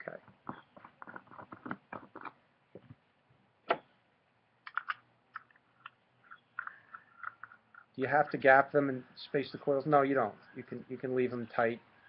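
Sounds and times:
small clicks and taps: 0:04.7 - 0:07.9.

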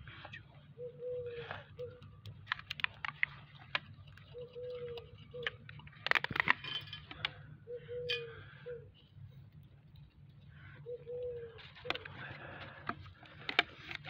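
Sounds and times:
dove cooing: 0:00.6 - 0:02.3, 0:04.2 - 0:05.7, 0:07.3 - 0:09.1, 0:10.5 - 0:12.7.

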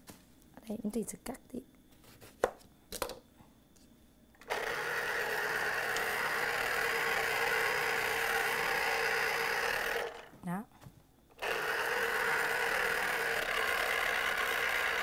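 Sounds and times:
electric juicer motor running: 0:04.4 - 0:10.3, 0:11.4 - 0:15.0.

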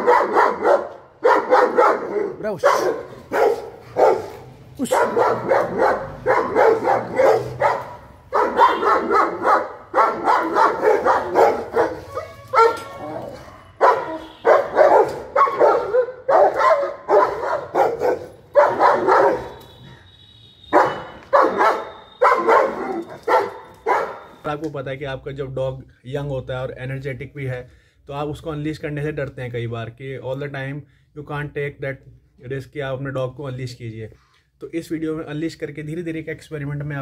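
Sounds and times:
dog barking hard and fast: 0:00.0 - 0:19.6, 0:20.7 - 0:24.4.

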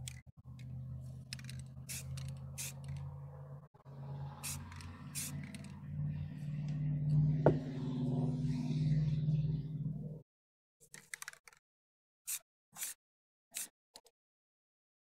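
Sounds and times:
spray paint can hissing: 0:01.9 - 0:03.0, 0:04.4 - 0:05.7.

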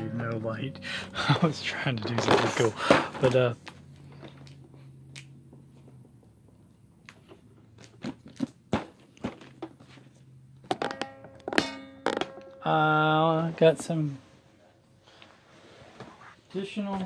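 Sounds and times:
pitched tune-like sound: 0:00.0 - 0:02.6.

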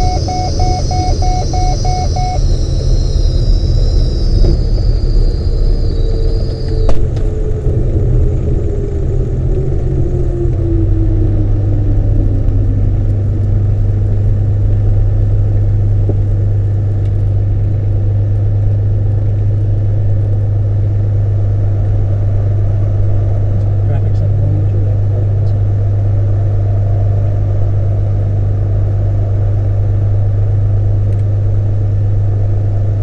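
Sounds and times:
tone falling in pitch: 0:00.0 - 0:04.9
airplane engine droning: 0:00.0 - 0:33.0.

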